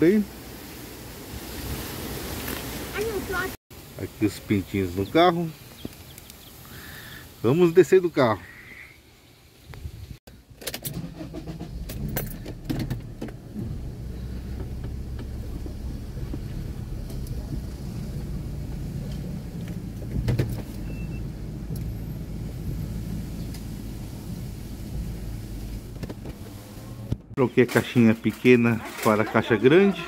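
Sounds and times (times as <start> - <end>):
steady low rumble: 11.5 - 27.4
car door opening and handled: 25.9 - 27.4.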